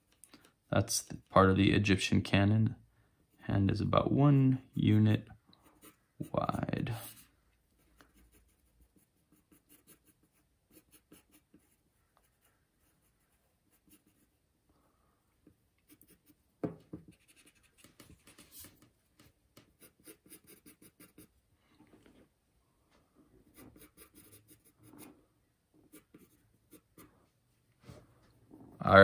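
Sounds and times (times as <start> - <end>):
pencil scratching on paper: 5.6 - 14.4, 15.8 - 16.4, 17.0 - 21.3, 23.4 - 25.2, 25.8 - 27.1.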